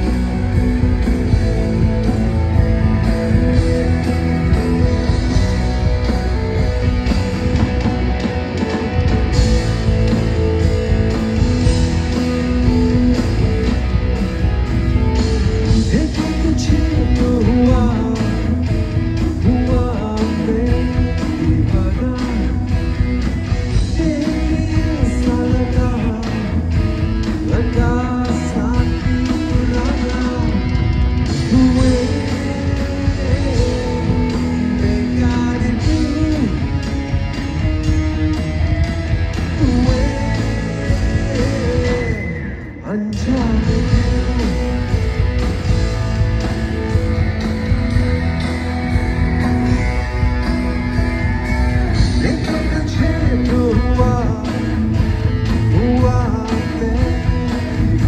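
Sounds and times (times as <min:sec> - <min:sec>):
rock band playing: 0:00.0 - 0:58.0
man singing: 0:15.5 - 0:37.1, 0:39.4 - 0:45.1, 0:49.5 - 0:58.0.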